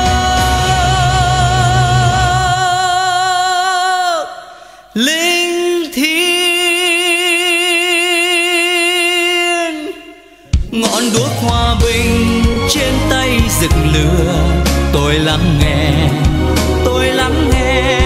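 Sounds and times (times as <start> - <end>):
solo voice singing with vibrato: 0.0 - 18.0
low backing music: 10.6 - 18.0.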